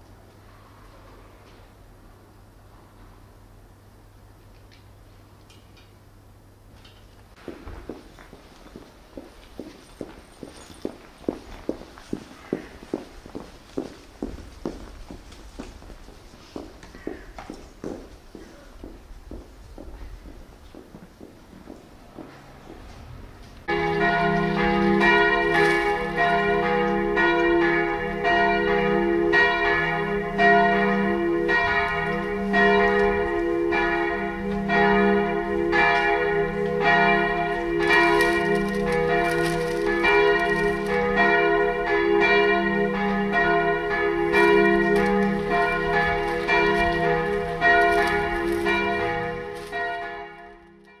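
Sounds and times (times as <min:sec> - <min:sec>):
church bells ringing: 0:08.2 - 0:12.9, 0:23.6 - 0:51.0.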